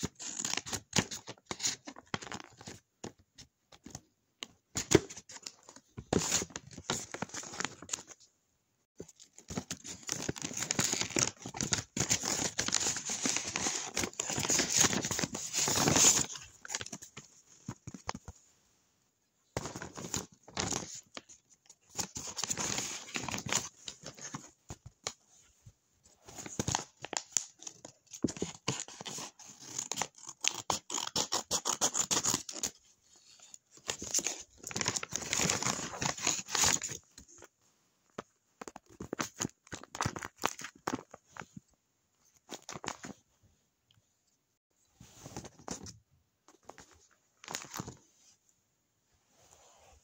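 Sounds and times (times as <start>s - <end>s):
paper rustling and crinkling: 9.0s - 18.4s, 33.8s - 37.2s.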